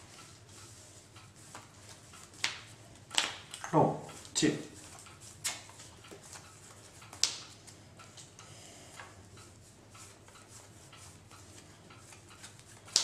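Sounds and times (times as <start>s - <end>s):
cards clicking and tapping: 2.3s - 4.3s, 4.9s - 8.3s, 12.0s - 13.0s.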